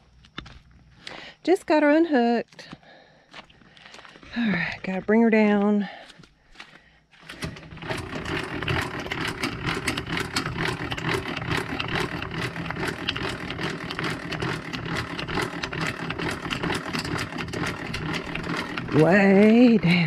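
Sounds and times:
jack gears clicking: 7.2s - 20.0s.

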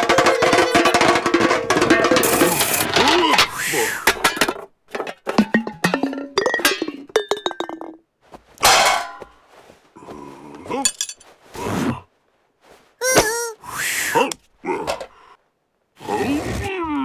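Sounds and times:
metal garden tools clinking: 0.0s - 7.8s, 8.6s - 9.4s, 10.8s - 11.3s.

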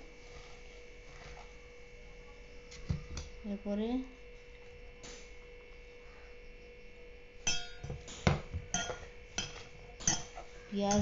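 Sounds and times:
faint steady hum: 0.0s - 11.0s
metal bowl clinking: 7.4s - 11.0s.

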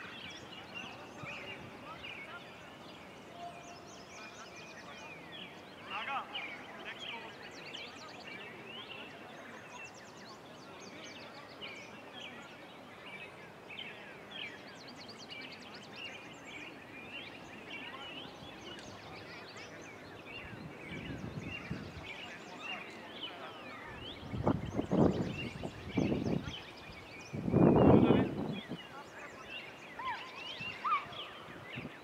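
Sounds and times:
faint outdoor hiss: 0.0s - 32.0s
small birds chirping: 0.0s - 32.0s.

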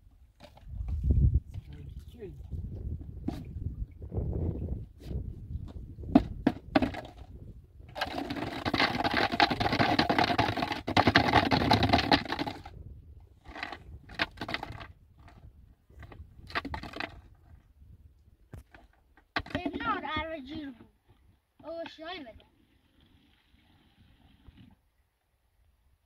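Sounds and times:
water pouring into plastic bottle: 7.9s - 12.7s.

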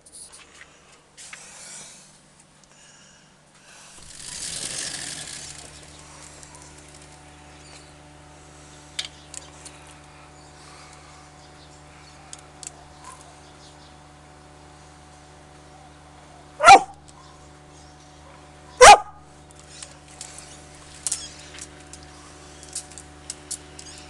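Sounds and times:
low outdoor hum: 0.0s - 24.0s
sliding glass door opening: 4.0s - 6.0s.

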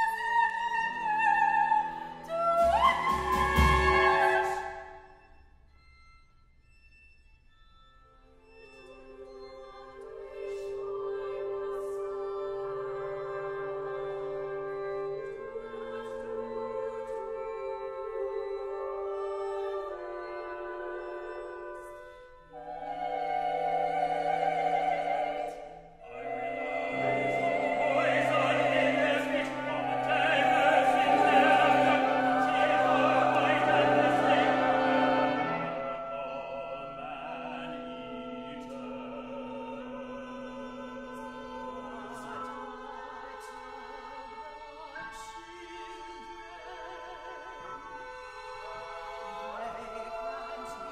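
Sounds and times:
operatic singing with vibrato: 0.0s - 5.2s, 8.6s - 50.9s
chamber ensemble chords: 16.3s - 40.2s.

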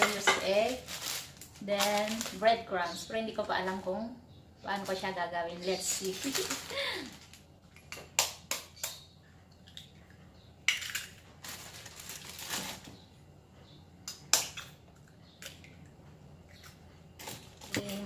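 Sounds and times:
plastic crinkling: 0.0s - 3.1s, 4.7s - 7.5s, 10.8s - 13.0s.

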